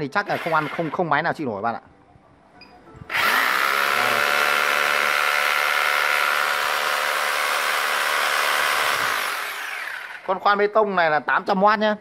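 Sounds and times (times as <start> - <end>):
rotary hammer drill running: 0.3 - 1.0, 3.1 - 10.5.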